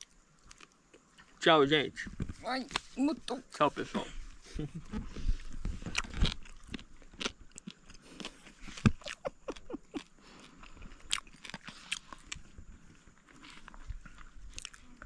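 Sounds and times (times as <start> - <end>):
person chewing crunchy fried fish: 0.0 - 1.4, 5.2 - 15.0.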